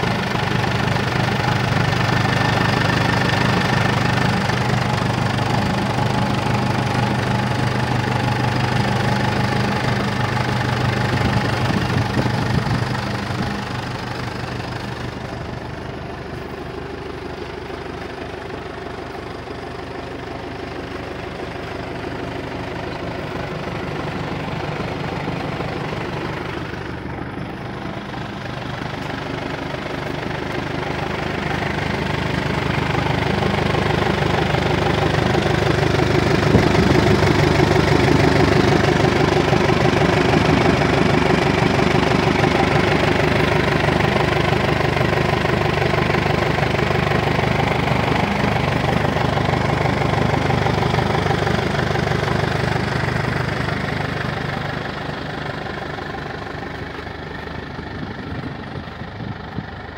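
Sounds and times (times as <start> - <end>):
tractor engine idling: 0.0 - 59.9.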